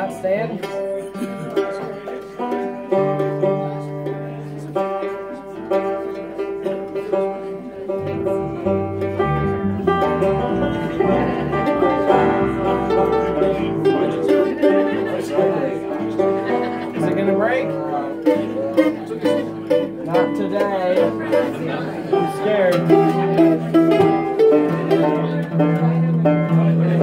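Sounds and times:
acoustic guitar: 0.0s - 27.0s
banjo: 0.0s - 27.0s
mandolin: 0.0s - 27.0s
electric bass: 7.9s - 27.0s.

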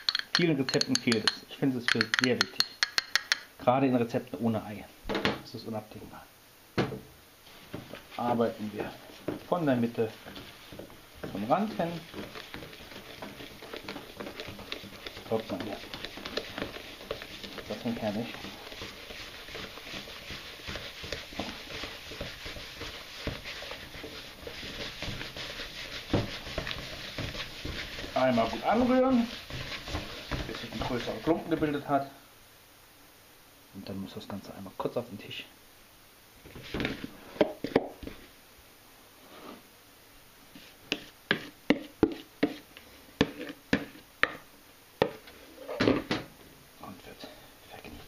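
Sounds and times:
knock on bowl: 0.0s - 3.5s
spoon scraping a bowl: 0.0s - 3.5s, 10.2s - 31.3s, 43.2s - 44.0s.

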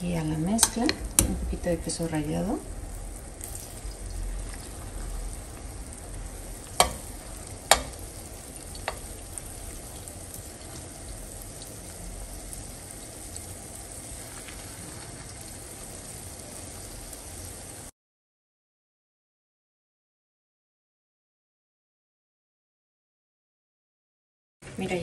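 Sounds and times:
fritters sizzling in oil: 0.0s - 17.9s
metal spoon clinking on pan: 0.6s - 1.3s, 6.8s - 7.1s, 7.7s - 8.0s, 8.8s - 9.1s.

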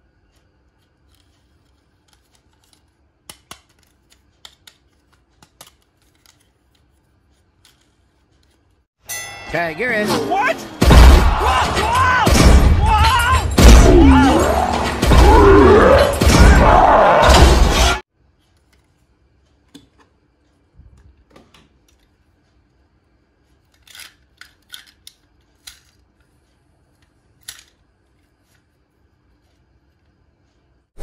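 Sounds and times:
person shouting: 9.9s - 17.4s.

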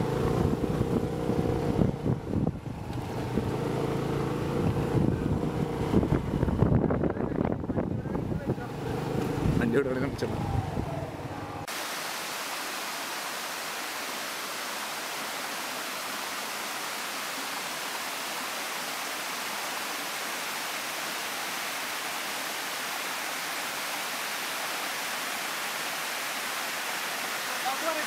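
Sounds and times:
water rushing over rocks: 11.6s - 28.0s.

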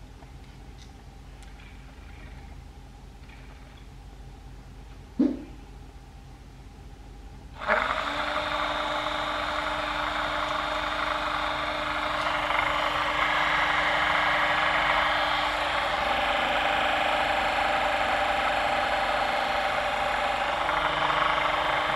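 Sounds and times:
small motor whirring hum: 7.5s - 21.9s.

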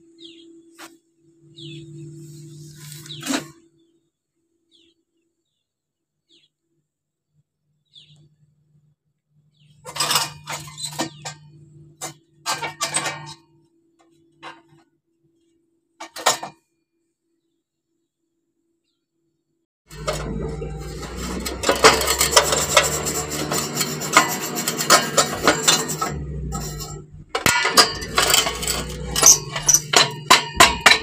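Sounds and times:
sharp clinks and knocks: 19.9s - 31.0s.

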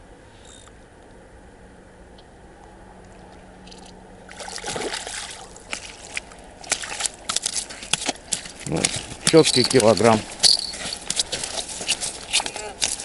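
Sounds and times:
fish splashing in water: 3.2s - 13.0s.

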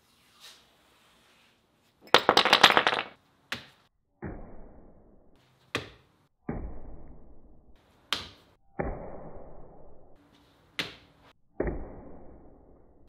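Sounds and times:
metal pieces clattering: 2.1s - 3.1s.

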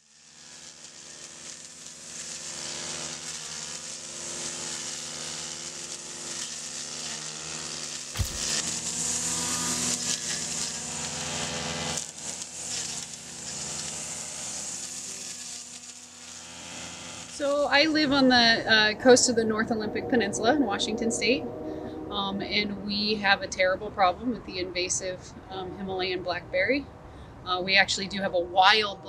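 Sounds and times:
brush cutter cutting dry brush: 0.0s - 18.2s
sharp knock: 8.2s - 8.7s.

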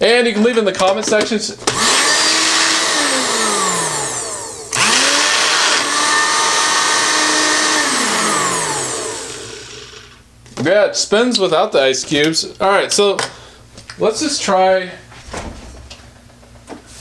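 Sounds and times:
blender motor whirring: 1.6s - 10.2s.

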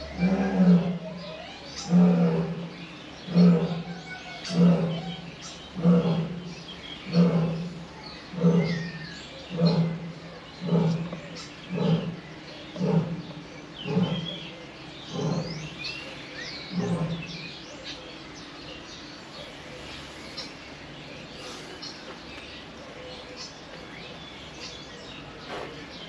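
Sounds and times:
lion roaring grunts: 0.0s - 18.0s
birds chirping faintly: 0.0s - 26.0s.

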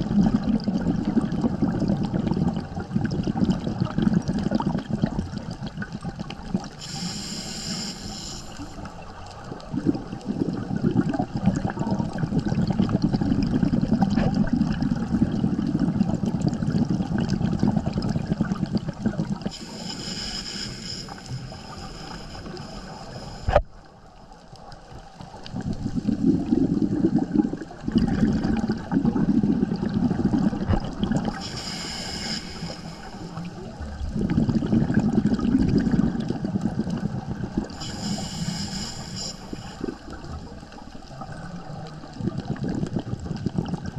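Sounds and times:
gurgling exhaled bubbles: 0.0s - 43.9s
regulator hissing inhalations: 6.7s - 8.9s, 19.5s - 23.6s, 31.3s - 33.7s, 37.7s - 40.1s.

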